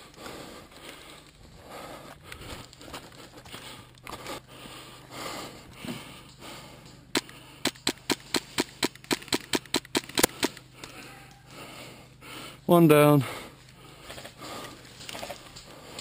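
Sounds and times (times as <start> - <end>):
rustling of movement: 0.0 - 12.6, 13.3 - 16.0
airsoft rifle shots: 7.1 - 10.6.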